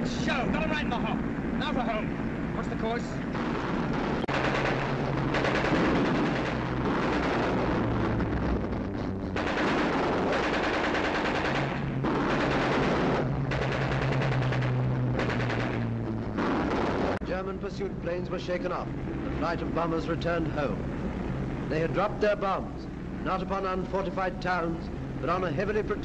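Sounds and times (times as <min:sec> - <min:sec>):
aircraft engines droning: 0:00.0 - 0:26.0
machine guns firing in bursts: 0:02.9 - 0:17.2.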